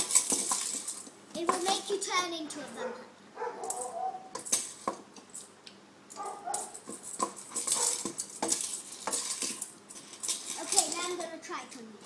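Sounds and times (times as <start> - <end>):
wooden spoon scraping metal pot: 6.6 - 11.2.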